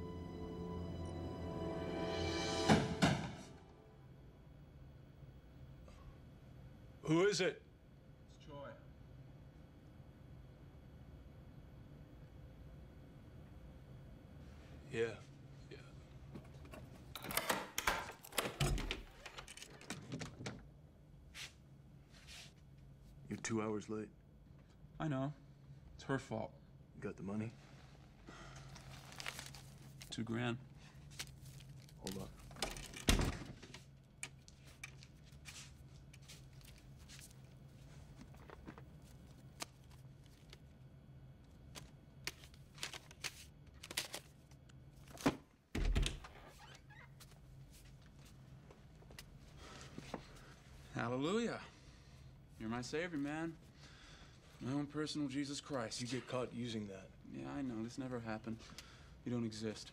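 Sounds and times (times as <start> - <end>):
door locks clicking and rattling: 17.2 - 20.6
steady low hum: 20.6 - 46.5
paper rustling: 28.6 - 30.2, 30.9 - 32.9, 34.3 - 40.7, 41.6 - 45.4.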